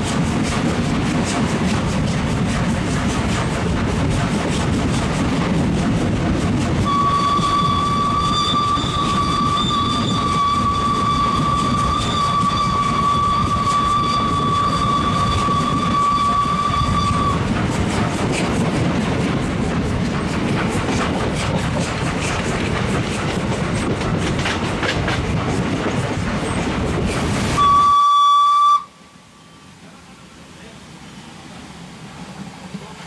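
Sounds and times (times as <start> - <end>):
train wheels clattering over rail joints: 0.0 - 27.4
steam locomotive whistle: 6.8 - 17.5, 27.5 - 29.6.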